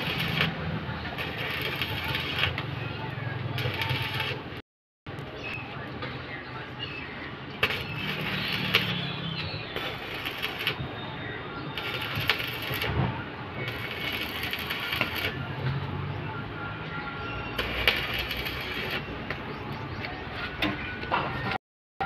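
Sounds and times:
arc welding crackling: 0.0 - 5.3, 7.6 - 10.9, 11.8 - 15.4, 17.6 - 19.1.

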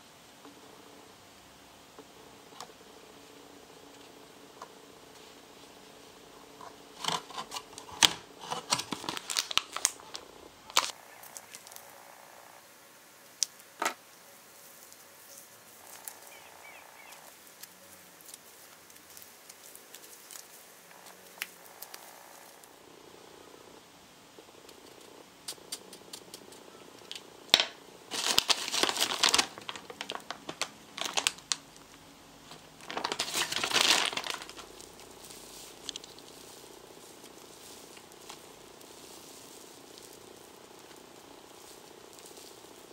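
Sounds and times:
clay crinkling by hand: 6.5 - 12.2, 13.2 - 22.8, 25.5 - 42.9.

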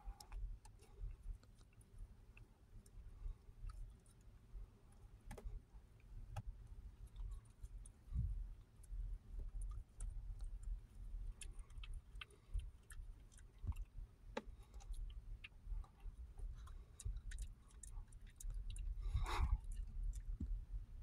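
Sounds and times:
steady low rumble: 0.0 - 21.0
dog chewing broccoli stalk: 7.0 - 20.7.

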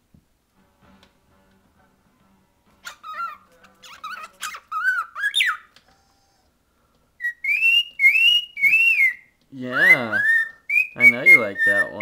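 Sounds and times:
cockatiel whistling: 2.8 - 6.5, 7.2 - 12.0.

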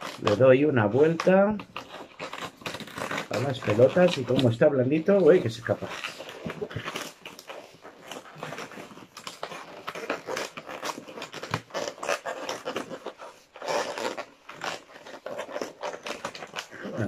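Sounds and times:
balloon squeaking and rubbing: 0.0 - 17.0.

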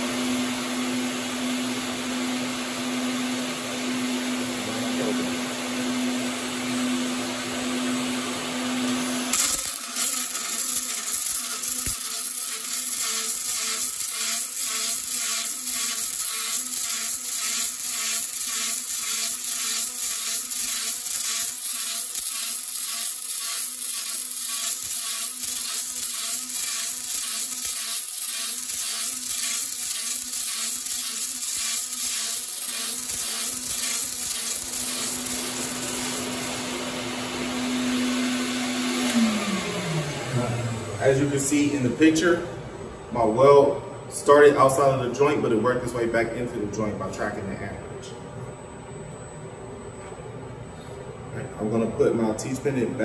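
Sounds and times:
fume extractor hum: 0.0 - 14.1, 33.0 - 53.0
welding arc crackling buzz: 8.8 - 37.8.

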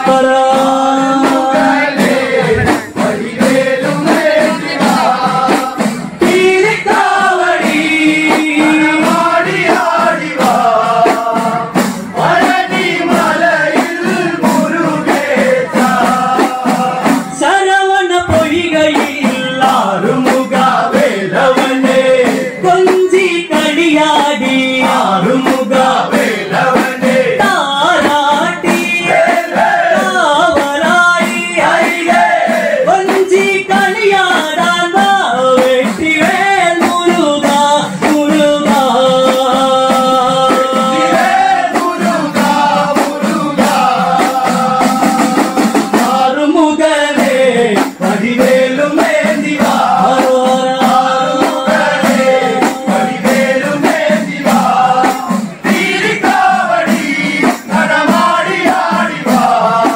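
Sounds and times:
men singing in chorus: 0.0 - 59.9
small hourglass drums beating: 18.2 - 59.9.

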